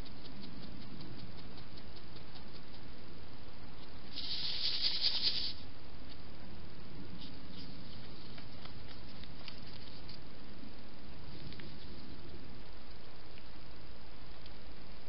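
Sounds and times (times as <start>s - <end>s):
faint ticks and scuffs: 0.0s - 6.3s, 7.1s - 13.6s
rustling: 3.7s - 6.3s, 7.1s - 10.5s.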